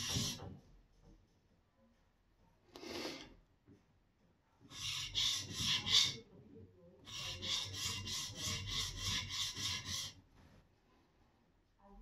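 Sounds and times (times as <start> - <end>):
plane iron scraping sharpening plate: 0.0 - 0.4, 4.7 - 6.2, 7.1 - 10.2.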